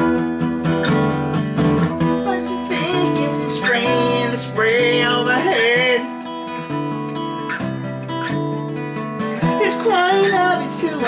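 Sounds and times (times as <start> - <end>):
person singing: 0.0 - 1.1, 1.9 - 6.3, 9.4 - 11.0
strummed acoustic guitar: 0.0 - 11.0.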